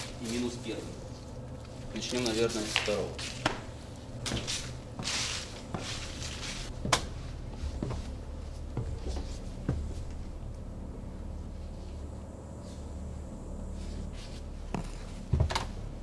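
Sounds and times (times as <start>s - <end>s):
footsteps on wooden floorboards: 3.3s - 10.4s, 14.7s - 15.8s.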